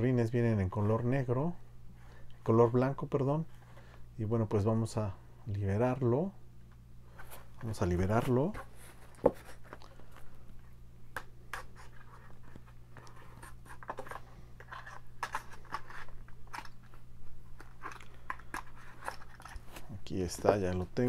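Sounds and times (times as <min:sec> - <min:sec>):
knife scraping plastic packaging: 0:13.1 - 0:16.8, 0:17.6 - 0:19.9.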